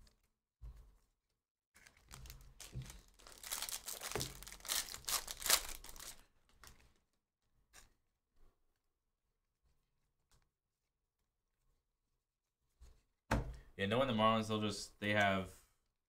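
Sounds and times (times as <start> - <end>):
foil wrapper tearing and crinkling: 1.8 - 6.2.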